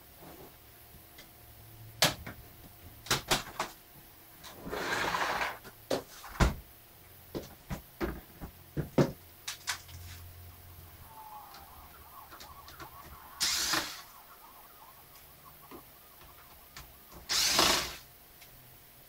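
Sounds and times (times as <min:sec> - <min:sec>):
electric screwdriver whirring: 0:13.4 - 0:14.0, 0:17.3 - 0:18.0.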